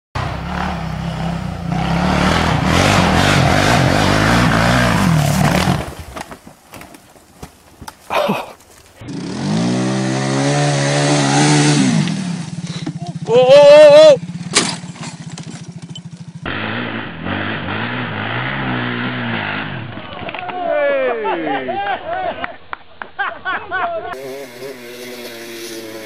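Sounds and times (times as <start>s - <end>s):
quad engine running hard: 0.2s - 5.8s, 9.0s - 19.8s, 24.2s - 26.0s
quad engine revving up a slope: 0.2s - 6.0s, 9.0s - 20.0s, 24.1s - 26.0s.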